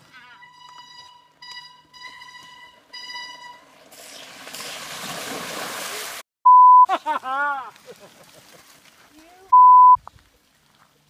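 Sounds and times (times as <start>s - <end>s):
bleep tone: 0.4s - 3.6s, 6.5s - 6.9s, 9.6s - 10.0s
bikes splashing through water: 3.2s - 6.2s, 7.7s - 9.2s.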